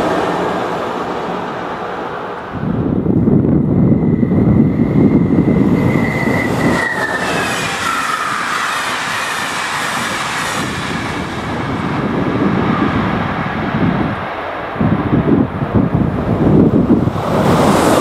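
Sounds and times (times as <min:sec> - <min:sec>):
train passing at speed: 0:00.0 - 0:18.0
wind on microphone: 0:02.5 - 0:18.0
wheels squealing on rails: 0:03.7 - 0:12.9.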